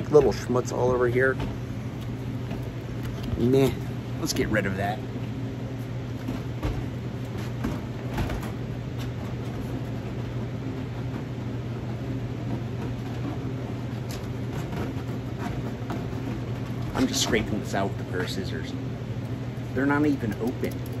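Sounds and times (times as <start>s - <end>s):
low machine hum: 0.0s - 21.0s.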